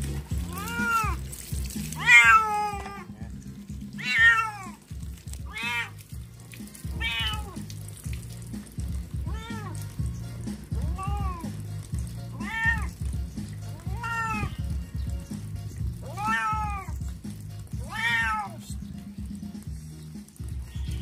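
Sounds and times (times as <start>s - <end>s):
cat meowing: 0.5s - 1.2s, 2.0s - 3.1s, 4.0s - 4.8s, 5.5s - 6.0s, 6.9s - 7.6s, 9.2s - 9.8s, 10.8s - 11.6s, 12.3s - 13.0s, 13.8s - 14.7s, 16.0s - 17.0s, 17.8s - 18.7s.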